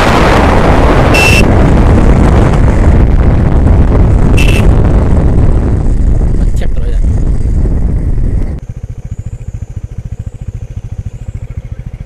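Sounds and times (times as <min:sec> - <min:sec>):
low engine rumble: 0:00.0 - 0:12.0
wind buffeting microphone: 0:00.0 - 0:12.0
short high beeps: 0:01.1 - 0:01.5.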